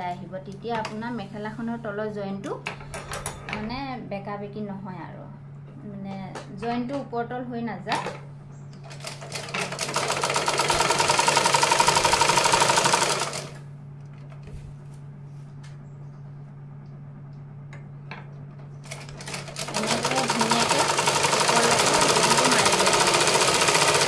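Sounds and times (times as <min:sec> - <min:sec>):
sewing machine stitching: 0:08.9 - 0:13.6, 0:18.9 - 0:24.0.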